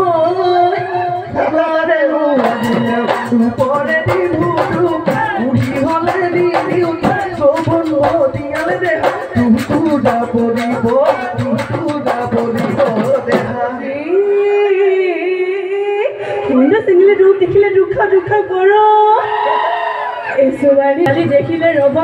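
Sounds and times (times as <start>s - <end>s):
drums beaten in fast rhythm: 0.0s - 14.0s, 20.7s - 22.0s
person singing: 0.0s - 16.9s.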